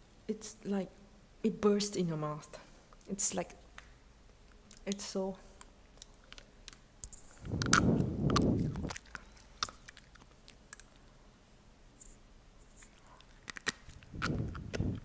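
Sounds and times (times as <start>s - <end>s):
small mouth clicks while eating: 5.6s - 11.2s, 12.8s - 15.0s.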